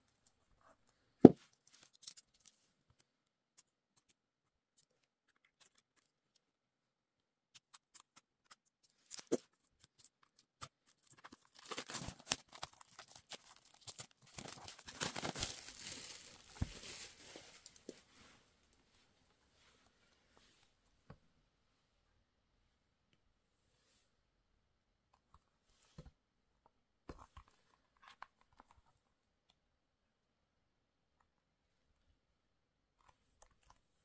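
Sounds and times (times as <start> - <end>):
plastic wrap crinkling and tearing: 10.0 - 17.9.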